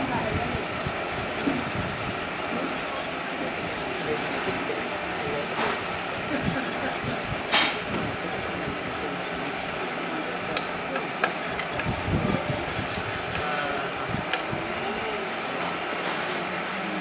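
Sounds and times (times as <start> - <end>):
railway car rolling hiss: 0.0 - 10.5.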